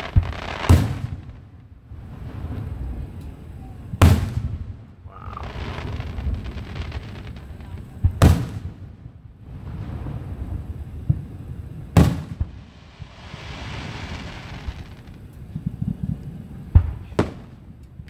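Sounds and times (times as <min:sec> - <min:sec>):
low rumble and crackle: 0:00.0 - 0:18.0
firework shells bursting: 0:11.9 - 0:16.0.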